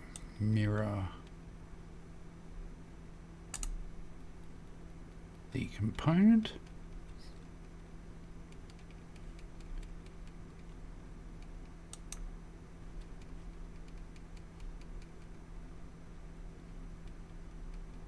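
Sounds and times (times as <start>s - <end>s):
low electrical hum: 0.0s - 18.0s
computer mouse clicks: 3.5s - 3.8s, 8.5s - 10.8s, 11.4s - 12.3s, 12.9s - 15.4s, 17.0s - 18.0s.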